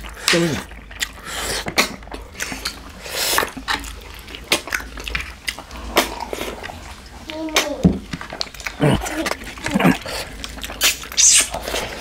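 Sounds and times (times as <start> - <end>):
wet chewing smacks: 0.0 - 12.0
slurping hisses: 9.9 - 12.0.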